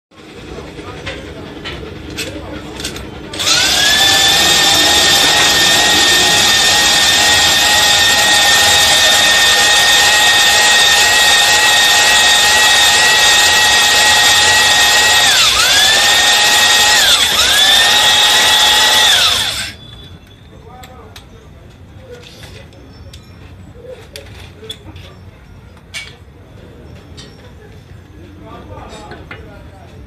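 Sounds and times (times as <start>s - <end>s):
electric drill motor whine: 3.4s - 20.1s.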